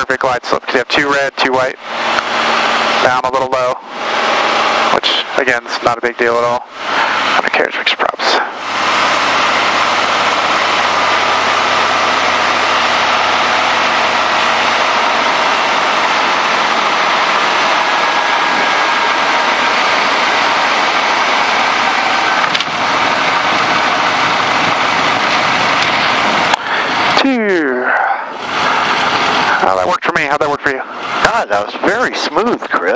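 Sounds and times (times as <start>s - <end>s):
plane engine and propeller: 0.0s - 32.9s
rush of airflow: 21.7s - 27.2s, 28.0s - 29.7s.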